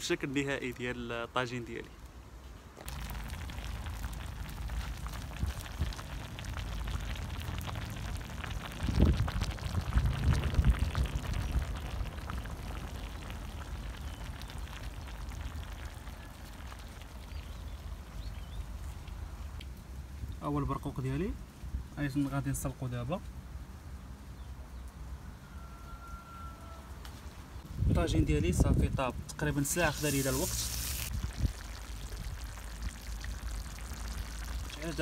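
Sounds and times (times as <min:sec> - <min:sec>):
tagine sauce bubbling: 0:02.8 - 0:19.6, 0:29.4 - 0:35.0.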